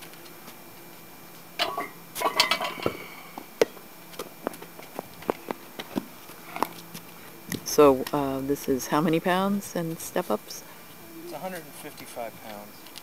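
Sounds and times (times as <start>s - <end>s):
barbell plates clinking: 1.6s - 3.2s.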